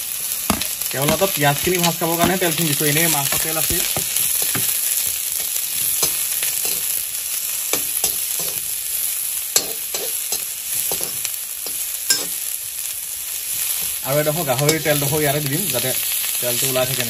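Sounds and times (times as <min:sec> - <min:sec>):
onions sizzling in hot oil: 0:00.0 - 0:17.0
metal spatula scraping a pan: 0:02.2 - 0:07.0, 0:07.7 - 0:08.7, 0:09.6 - 0:12.5.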